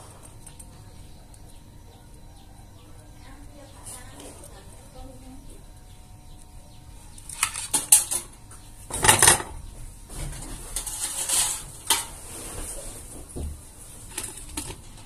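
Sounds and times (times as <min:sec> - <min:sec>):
tools clattering on a workbench: 0:07.4 - 0:08.3, 0:08.9 - 0:09.6.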